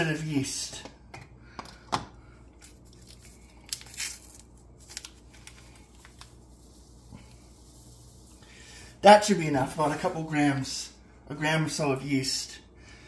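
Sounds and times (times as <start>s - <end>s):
crinkling: 2.5s - 7.4s.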